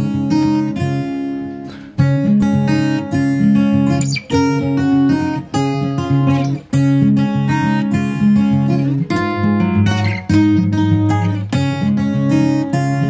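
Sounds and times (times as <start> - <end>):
acoustic guitar music: 0.0 - 13.0.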